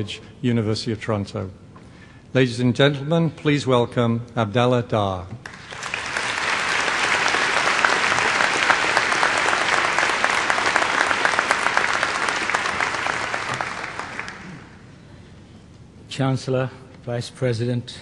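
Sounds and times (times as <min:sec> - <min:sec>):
audience applauding: 0:05.4 - 0:14.8.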